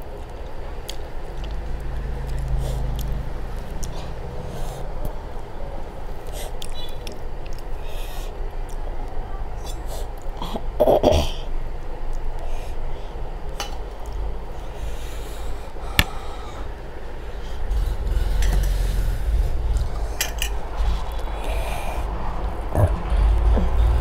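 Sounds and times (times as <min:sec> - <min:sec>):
steady low hum: 0:00.0 - 0:24.0
mouth eating noises: 0:19.5 - 0:24.0
loud snort: 0:22.7 - 0:24.0.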